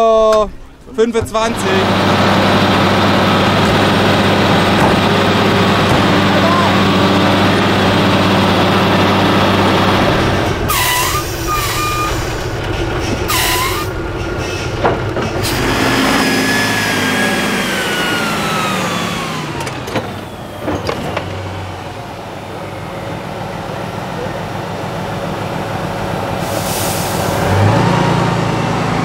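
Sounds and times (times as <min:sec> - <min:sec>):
diesel truck engines running: 0:00.0 - 0:29.0
air hiss: 0:26.4 - 0:27.4.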